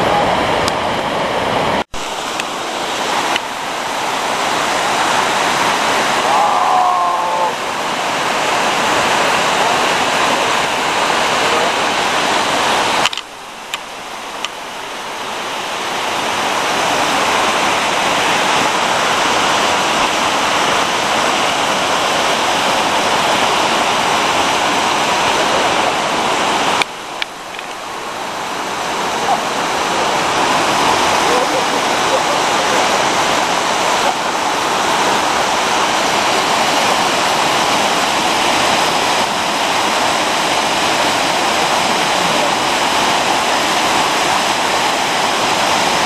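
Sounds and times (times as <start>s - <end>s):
rushing whitewater stream: 0.0s - 46.0s.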